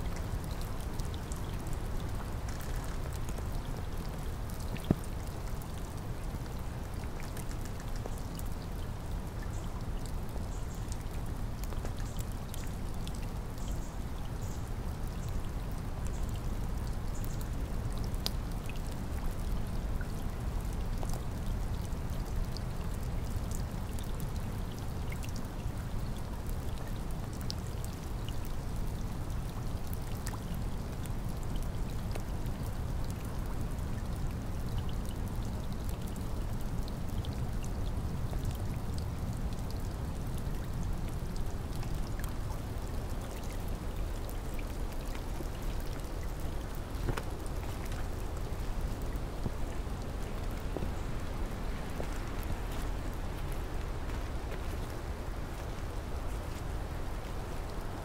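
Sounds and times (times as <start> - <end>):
heavy rain: 25.7 - 58.0.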